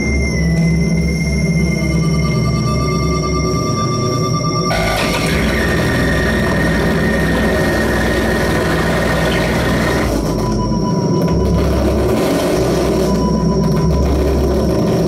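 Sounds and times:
high held tone: 4.6s - 11.2s
distorted noise music: 4.6s - 15.0s.

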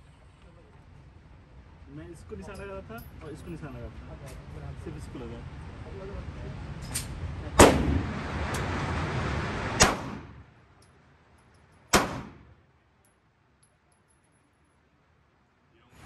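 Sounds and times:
gunshots with echoing tail: 7.6s - 8.1s, 9.8s - 10.4s, 11.9s - 12.5s.

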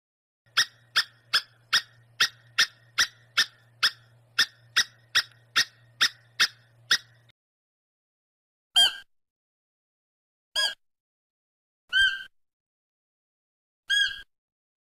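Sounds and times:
low steady hum: 0.5s - 7.3s
short high squeak: 13.9s - 14.3s.

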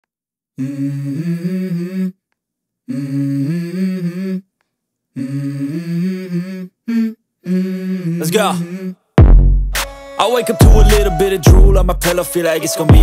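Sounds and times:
person humming melody: 0.6s - 2.2s, 5.2s - 9.0s, 10.2s - 13.0s.

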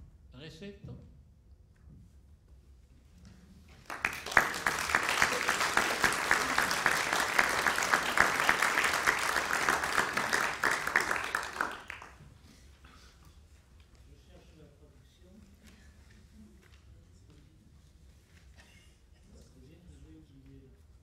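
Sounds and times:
audience applauding: 3.8s - 12.2s.

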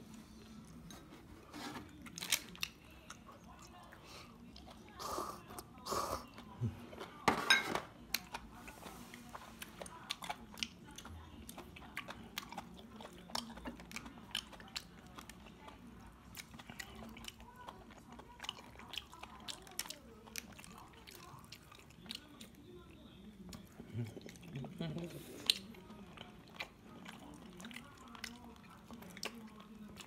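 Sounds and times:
chewing: 0.1s - 7.2s, 8.0s - 30.0s
dishes clattering: 7.2s - 7.9s.

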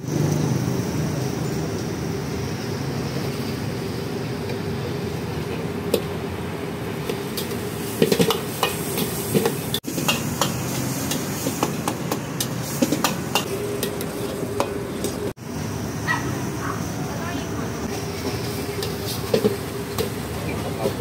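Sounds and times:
metal ladle scraping wok: 7.0s - 15.3s.

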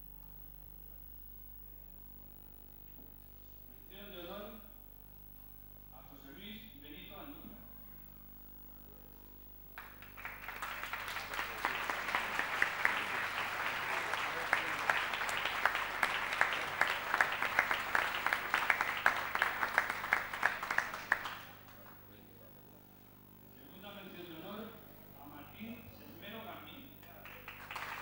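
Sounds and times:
audience applauding: 9.8s - 22.1s, 27.0s - 28.0s.

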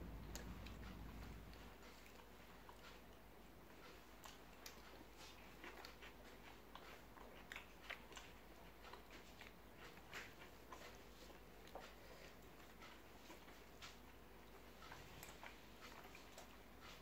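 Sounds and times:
chewing clicks and crackles: 0.2s - 17.0s.

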